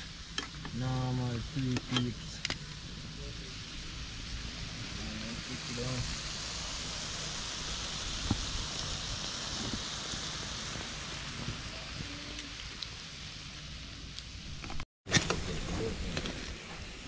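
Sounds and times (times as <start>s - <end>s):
oil sizzling in frying pan: 0.0s - 14.6s
oil popping: 6.0s - 13.0s.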